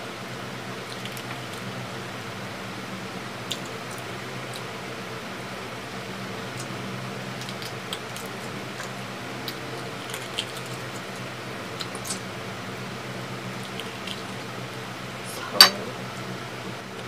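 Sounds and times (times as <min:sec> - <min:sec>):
steady low hum: 0:00.0 - 0:17.0
mouth smacks and clicks eating: 0:00.8 - 0:01.7, 0:03.4 - 0:04.7, 0:06.4 - 0:12.3, 0:13.5 - 0:14.5.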